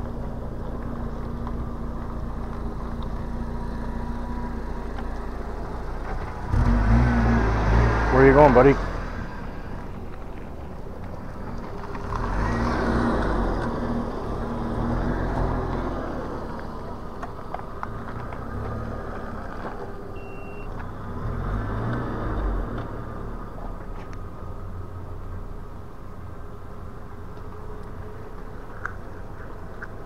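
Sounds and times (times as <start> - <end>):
scooter wheel and motor rumble: 0.0 - 30.0
short high beep: 20.2 - 20.7.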